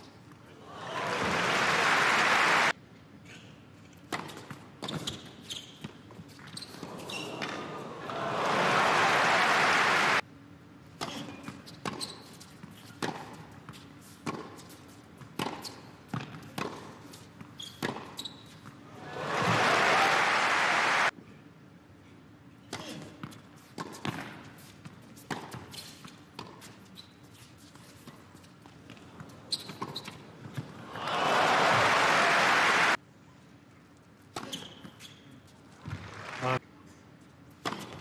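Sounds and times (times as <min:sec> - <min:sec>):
crowd applauding: 0:00.8 - 0:02.7, 0:07.6 - 0:10.2, 0:19.0 - 0:21.1, 0:30.8 - 0:33.0, 0:36.0 - 0:36.6
tennis ball bouncing: 0:37.6 - 0:38.0.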